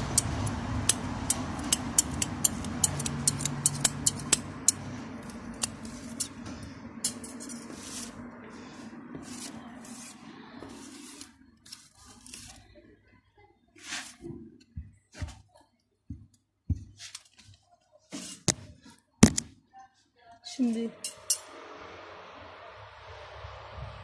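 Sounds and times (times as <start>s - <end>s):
scissors snipping plant stems: 0.0s - 6.4s.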